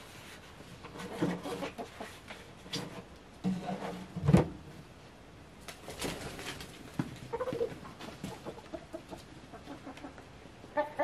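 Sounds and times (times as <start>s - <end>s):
chickens clucking: 0.9s - 2.4s, 6.0s - 11.0s.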